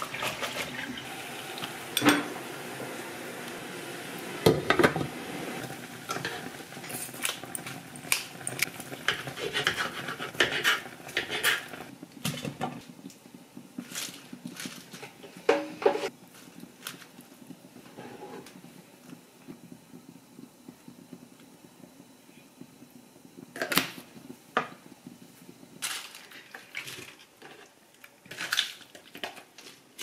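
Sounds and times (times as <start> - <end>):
utensils and dishes clattering: 1.9 - 2.4.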